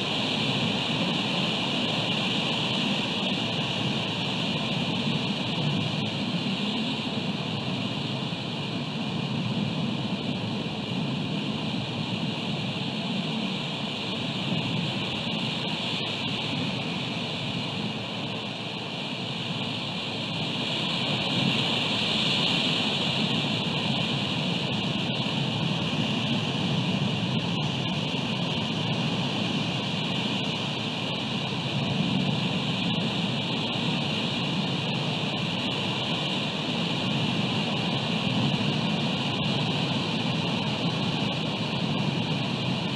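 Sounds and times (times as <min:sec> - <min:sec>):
ocean surf: 0:13.0 - 0:42.8.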